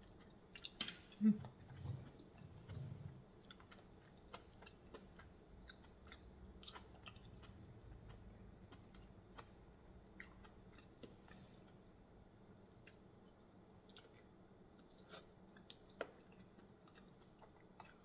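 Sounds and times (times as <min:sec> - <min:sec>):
faint chewing: 0:00.0 - 0:12.0, 0:12.8 - 0:18.0.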